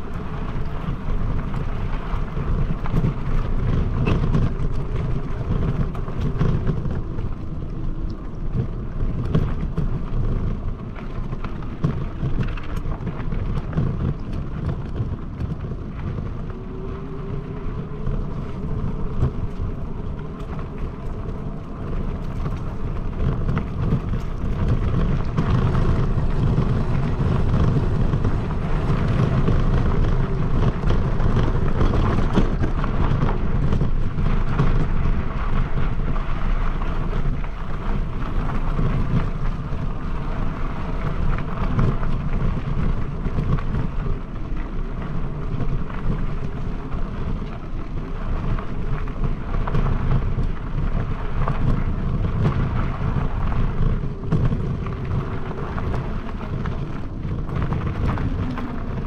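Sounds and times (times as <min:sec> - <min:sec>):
bike crackles and rattles: 0:00.0 - 0:59.0
tyres rumbling on ground: 0:00.0 - 0:59.0
wind on microphone: 0:00.0 - 0:59.0.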